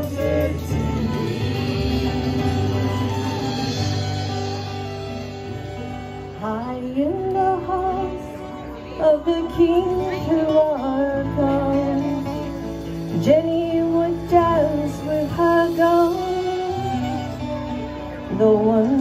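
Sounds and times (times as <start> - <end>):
woman singing a ballad: 0.0 - 4.0, 6.4 - 12.5, 13.1 - 17.2, 18.3 - 19.0
guitar: 0.0 - 19.0.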